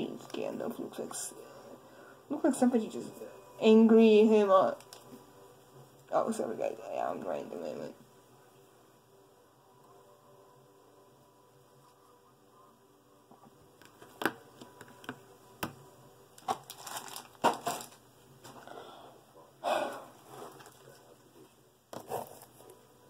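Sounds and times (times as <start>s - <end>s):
packaging crinkling and rustling: 4.8s - 5.1s, 16.4s - 18.6s, 20.3s - 21.1s.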